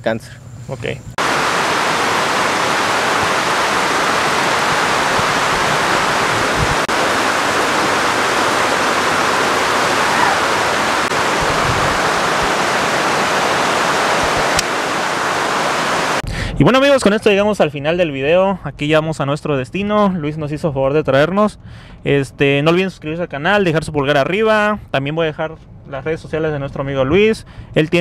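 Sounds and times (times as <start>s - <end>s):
heavy rain on trees and ground: 1.2s - 16.2s.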